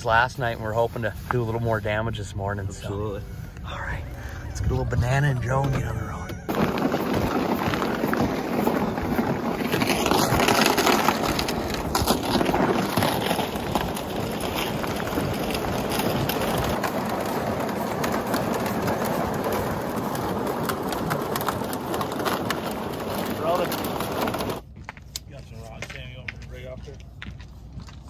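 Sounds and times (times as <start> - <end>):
sled scraping across ice: 0.0 - 24.6
boots crunching on snowy ice: 6.5 - 21.1.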